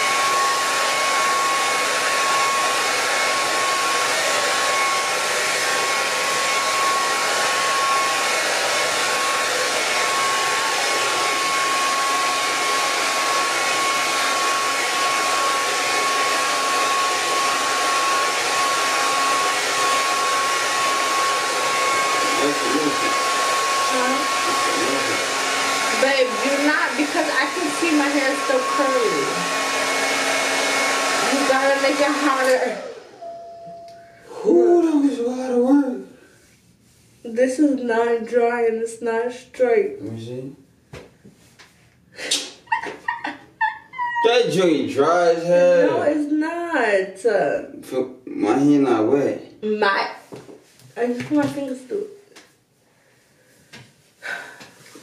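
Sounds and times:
blow dryer running: 0:00.0 - 0:35.9, 0:44.2 - 0:46.2.

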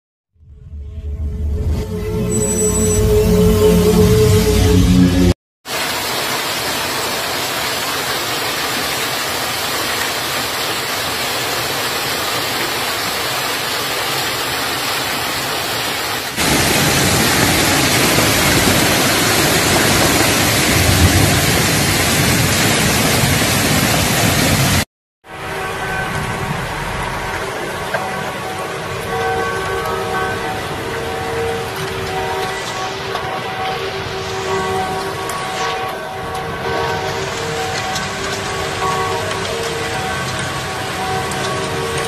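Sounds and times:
heavy rain and hail: 0:05.6 - 0:24.9, 0:25.5 - 0:42.0.

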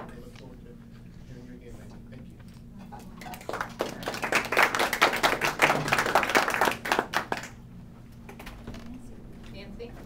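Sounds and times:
audience applauding: 0:03.2 - 0:07.6.

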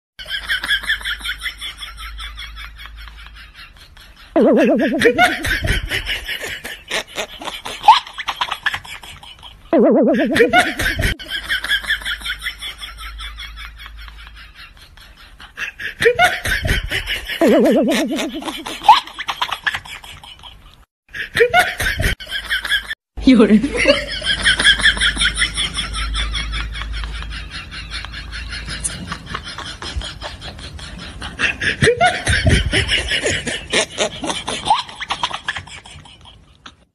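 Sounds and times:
laughter in quick bursts: 0:00.2 - 0:23.0, 0:23.7 - 0:36.9
short high-pitched pulses: 0:04.4 - 0:05.4, 0:09.8 - 0:11.1
loud wobbling tone: 0:04.4 - 0:05.7, 0:09.8 - 0:11.2.

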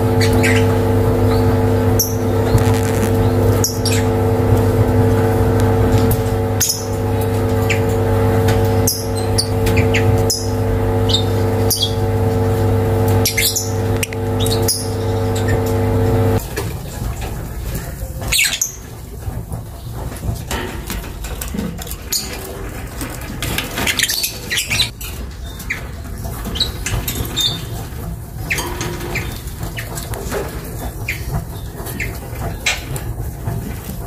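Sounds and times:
birds chirping and squeaking: 0:00.0 - 0:16.4, 0:17.8 - 0:20.5, 0:21.9 - 0:33.9
low steady hum: 0:00.0 - 0:16.5.

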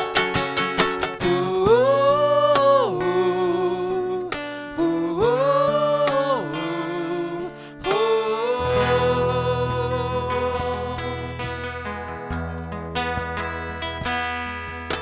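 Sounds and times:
strummed acoustic guitar: 0:00.0 - 0:15.0
man singing wordless notes: 0:01.2 - 0:12.0.

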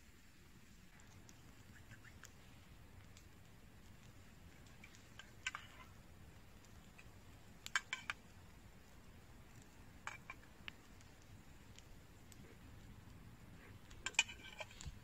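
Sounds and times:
faint low hiss: 0:00.0 - 0:15.0.

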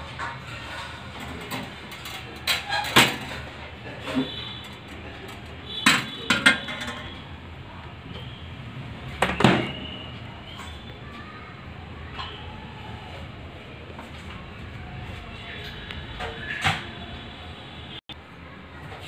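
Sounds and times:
metal grill rack clanking: 0:00.0 - 0:07.2.

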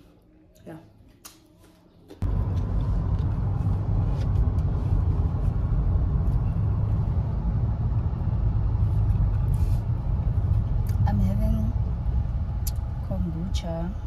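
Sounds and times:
car rumble from inside cabin: 0:02.2 - 0:14.0.

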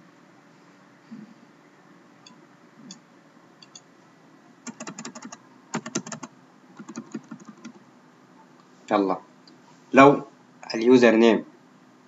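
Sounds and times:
keyboard typing: 0:04.7 - 0:07.8.

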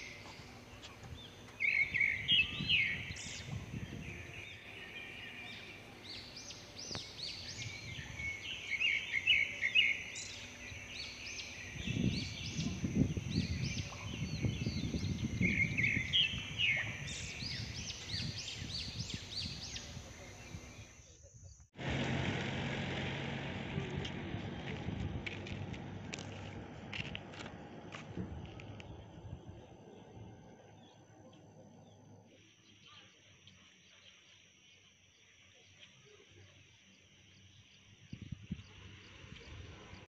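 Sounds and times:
small birds chirping and singing: 0:00.0 - 0:21.7
steady high-pitched whine: 0:00.0 - 0:21.7, 0:24.0 - 0:40.0
low rumble: 0:21.8 - 0:32.2.

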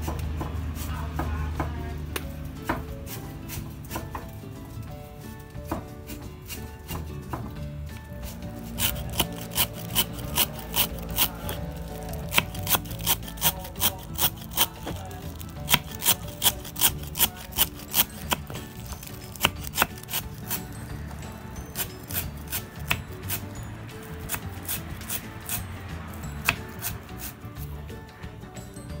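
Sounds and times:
knife chopping on wooden board: 0:02.2 - 0:04.4, 0:05.6 - 0:07.6, 0:08.2 - 0:20.7, 0:21.7 - 0:27.4.

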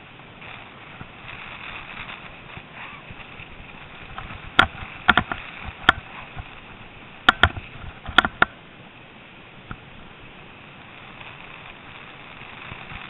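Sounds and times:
steady hiss: 0:00.0 - 0:13.0
bike knocking over bumps: 0:04.1 - 0:06.5.

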